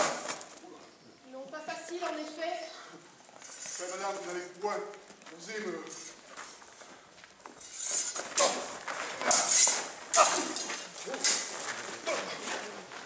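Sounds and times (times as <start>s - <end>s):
swords clashing: 7.6s - 12.4s.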